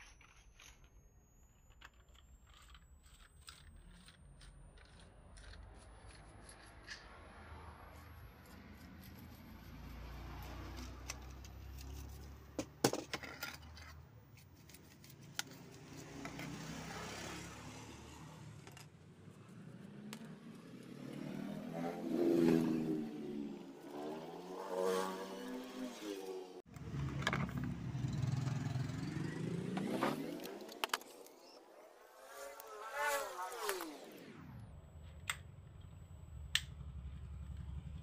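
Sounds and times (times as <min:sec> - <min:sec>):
plastic parts clicking and clacking: 0:01.6 - 0:07.1, 0:10.8 - 0:16.6, 0:30.3 - 0:31.5
vehicle engine: 0:01.7 - 0:38.0
low steady rumble: 0:34.6 - 0:38.0.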